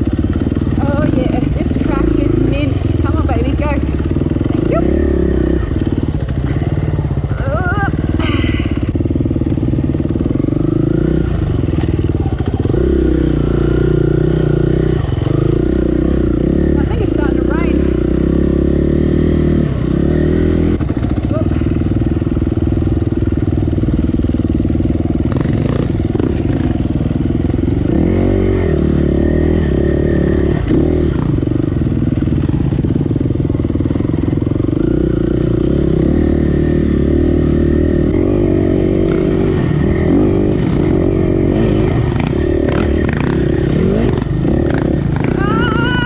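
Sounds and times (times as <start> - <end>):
motorbike engine revving: 0.0 - 46.0.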